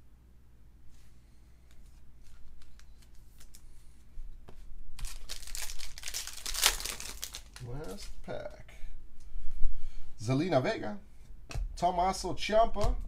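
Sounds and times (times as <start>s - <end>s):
cards clicking and rustling: 1.7s - 3.7s, 4.5s - 8.2s
foil pack tearing and crinkling: 5.0s - 8.1s.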